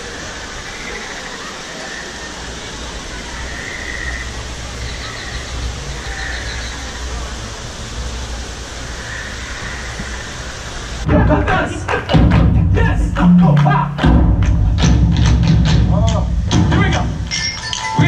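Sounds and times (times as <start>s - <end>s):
outdoor ambient rumble: 1.9s - 17.4s
music with heavy drums: 11.1s - 17.5s.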